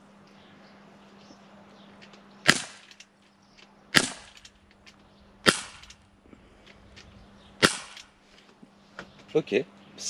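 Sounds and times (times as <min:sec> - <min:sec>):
air gun shots: 0:02.4 - 0:03.0, 0:03.9 - 0:04.5, 0:05.4 - 0:06.0, 0:07.6 - 0:08.2.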